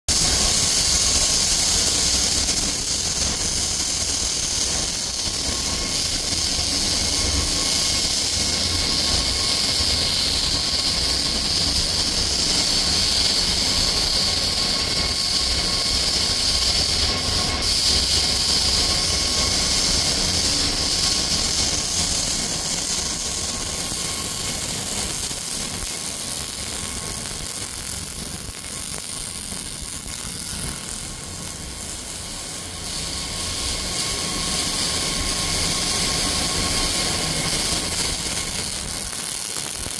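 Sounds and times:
welding arc burning: 0.1s - 39.9s.

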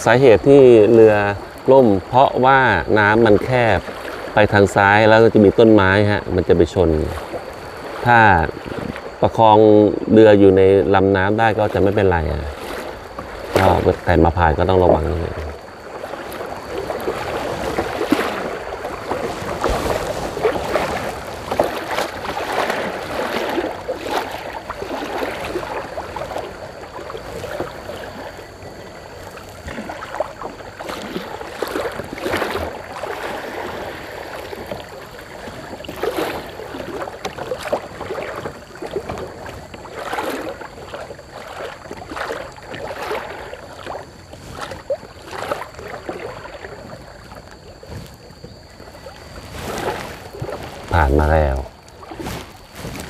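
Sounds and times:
paddle splashes: 0.0s - 53.0s
river water rushing: 11.4s - 48.0s.

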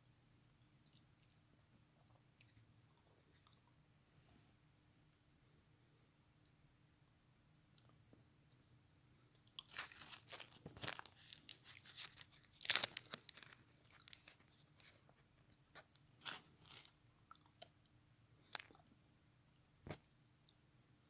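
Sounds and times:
biting and chewing chocolate: 9.4s - 15.0s
plastic wrapper crinkling: 9.6s - 17.0s.

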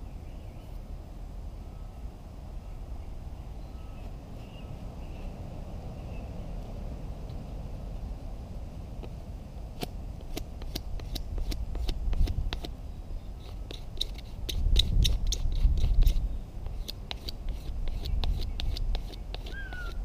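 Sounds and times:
wind rumble on microphone: 0.0s - 20.0s
knife scraping fungus: 13.4s - 20.0s.

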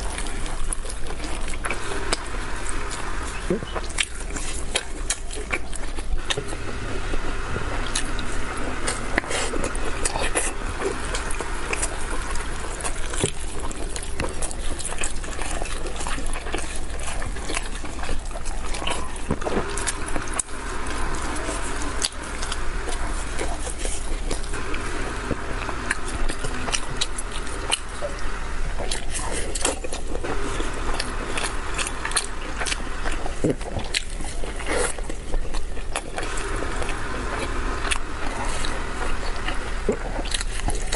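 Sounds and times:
chewing and mouth sounds: 0.0s - 40.9s.

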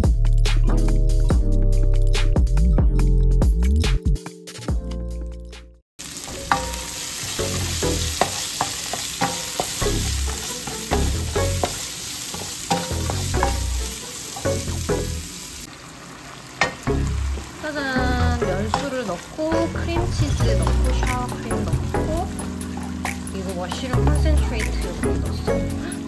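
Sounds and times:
food sizzling in frying pan: 6.0s - 25.9s.

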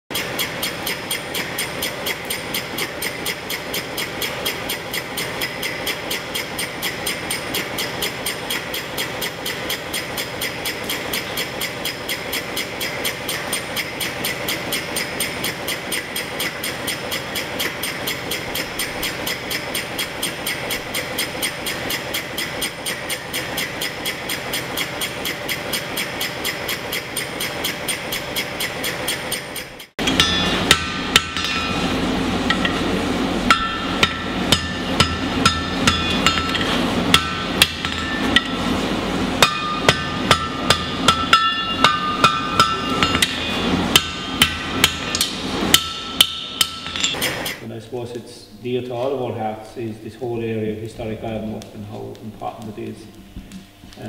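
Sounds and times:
rhythmic metallic ringing strikes: 0.1s - 47.3s
hammer blows on anvil: 30.0s - 38.8s, 39.4s - 47.6s.

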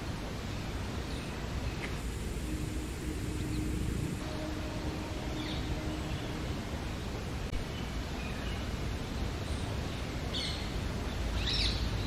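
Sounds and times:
faint steady hum: 0.0s - 12.0s
low rumble with hiss: 0.0s - 12.0s.

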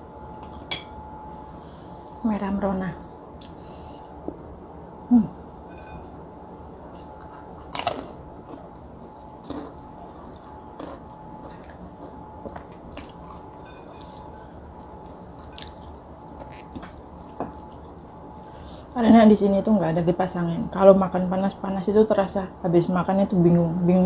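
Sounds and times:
person chewing: 6.8s - 18.7s.

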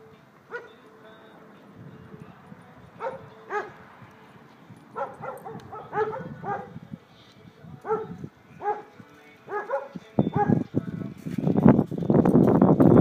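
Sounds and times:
dogs barking: 0.5s - 0.8s, 3.0s - 3.8s, 4.8s - 6.8s, 7.8s - 10.7s.

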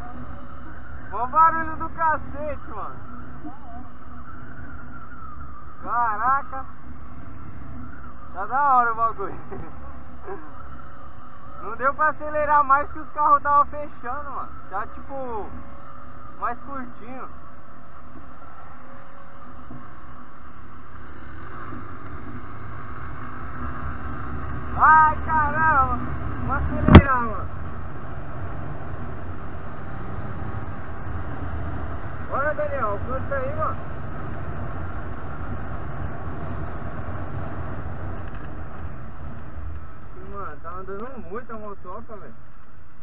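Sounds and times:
motorcycle engine running: 0.0s - 12.3s, 15.4s - 40.7s
road noise: 0.0s - 43.0s
wind noise: 11.5s - 41.4s
wind noise on microphone: 21.3s - 32.4s.

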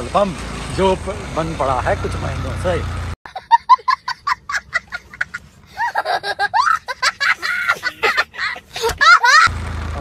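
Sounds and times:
young child giggling: 3.3s - 9.5s.

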